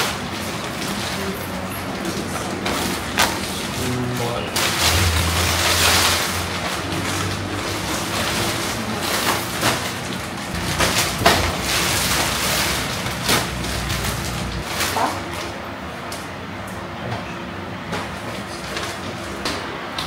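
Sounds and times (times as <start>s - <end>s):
plastic packaging rustling: 0.0s - 15.6s.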